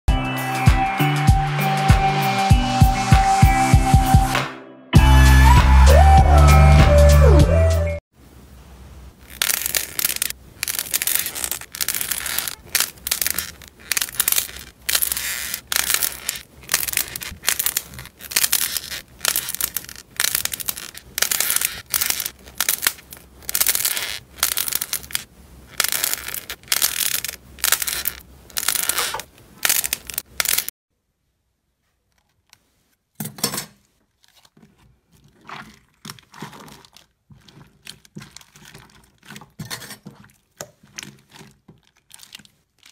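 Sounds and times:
clay crackling and tearing: 9.2s - 30.8s, 34.0s - 42.9s.

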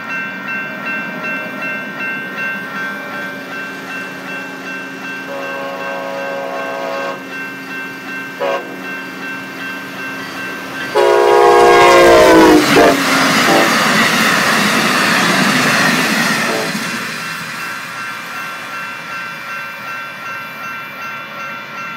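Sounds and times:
locomotive horn blast: 5.3s - 7.2s, 8.4s - 8.8s, 10.9s - 13.9s, 16.4s - 16.8s
train wheel clatter: 10.1s - 19.1s.

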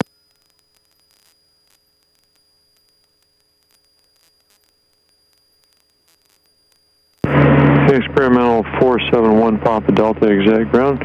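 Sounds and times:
faint ticks: 0.0s - 7.2s
faint hum and hiss: 0.0s - 11.0s.

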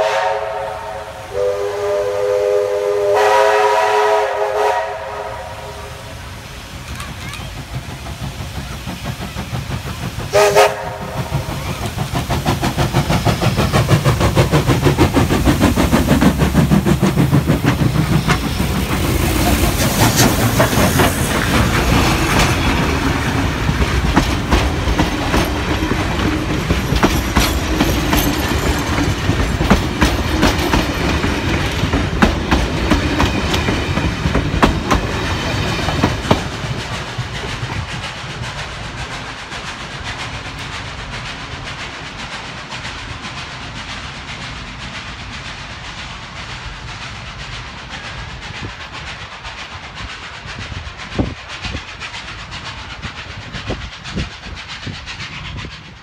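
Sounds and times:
steam locomotive passing: 0.0s - 56.0s
carriage wheels clicking over rail joints: 11.3s - 45.8s.

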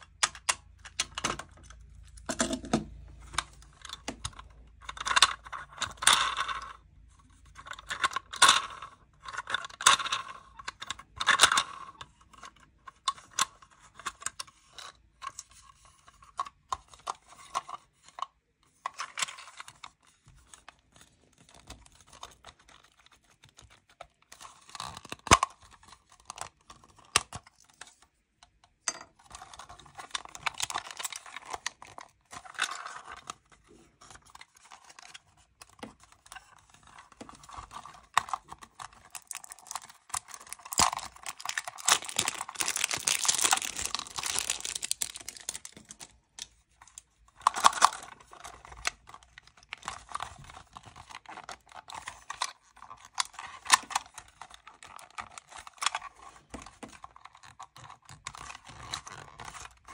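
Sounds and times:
plastic crinkling and tearing: 21.0s - 27.8s, 29.3s - 59.9s.

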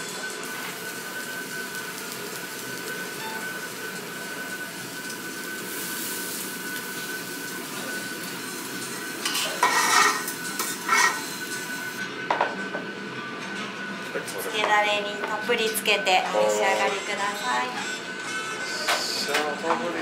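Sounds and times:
meat sizzling on a grill: 0.0s - 12.0s
smoke extractor hum: 0.0s - 13.1s
tableware clattering: 9.2s - 11.3s.

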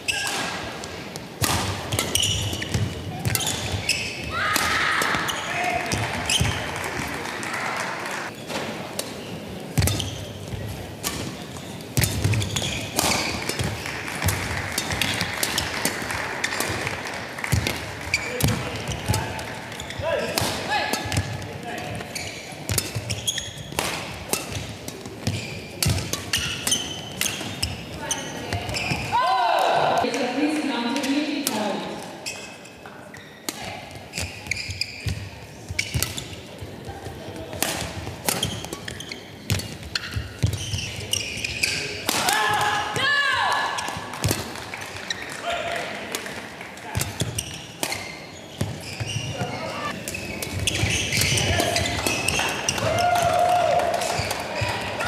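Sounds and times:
shoes squeaking on court floor: 0.0s - 7.1s, 8.2s - 29.2s, 31.0s - 42.1s, 43.6s - 45.5s, 46.2s - 53.0s, 54.0s - 55.0s
racket striking shuttlecock: 1.4s - 3.8s, 9.8s - 10.1s, 12.0s - 17.8s, 20.2s - 21.3s, 22.7s - 27.7s
racket hitting shuttlecock: 1.4s - 6.6s, 9.8s - 27.9s, 37.4s - 42.8s, 43.8s - 44.6s, 46.1s - 48.8s.

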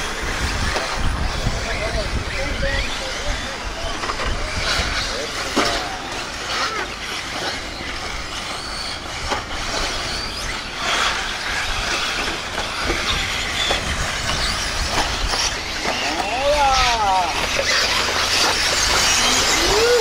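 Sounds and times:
rc motor and gear whine: 0.0s - 20.0s
tyre noise: 0.0s - 20.0s.

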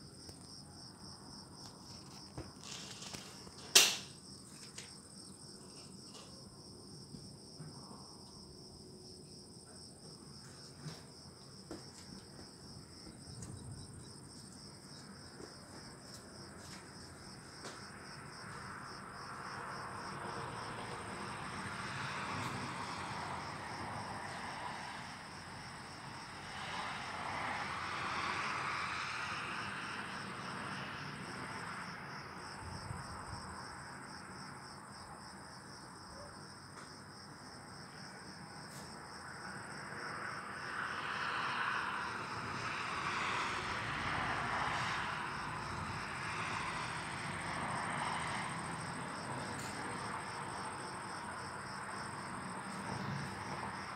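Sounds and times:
crickets chirping: 0.0s - 53.9s.

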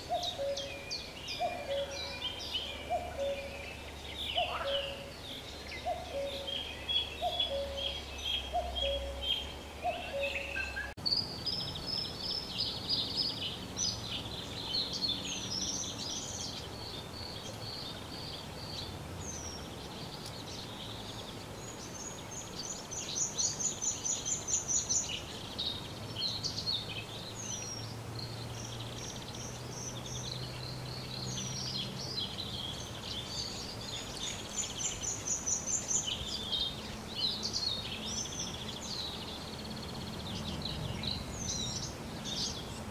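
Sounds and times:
songbirds chirping and whistling: 0.0s - 42.9s
rapid high bird trills: 1.4s - 9.3s.

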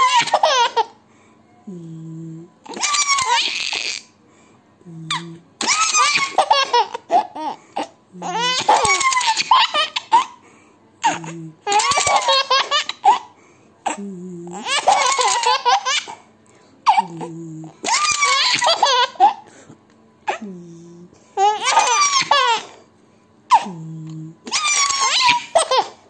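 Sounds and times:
baby laughing: 0.0s - 1.0s, 2.6s - 4.1s, 5.1s - 10.4s, 11.0s - 13.3s, 13.9s - 16.2s, 16.9s - 19.5s, 21.4s - 22.8s, 24.4s - 26.0s.

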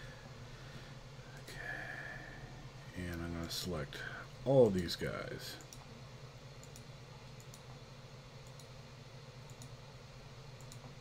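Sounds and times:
steady low hum: 0.0s - 11.0s
faint computer mouse clicks: 5.6s - 5.9s, 6.6s - 7.8s, 8.4s - 8.7s, 9.5s - 9.8s, 10.6s - 10.9s.

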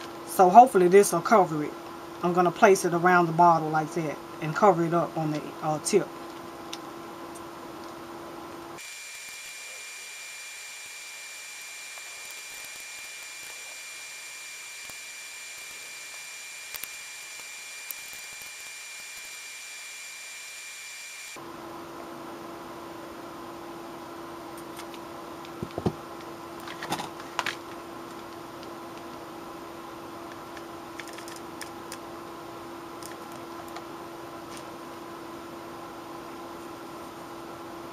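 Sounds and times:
background hum and hiss: 0.0s - 37.9s.

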